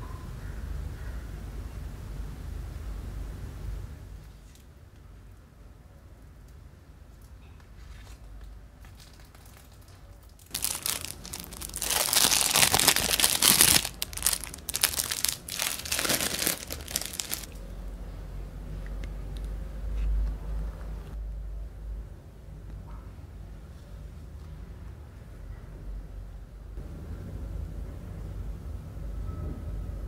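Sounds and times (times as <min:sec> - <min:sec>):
cling film crinkling: 0:08.8 - 0:17.6.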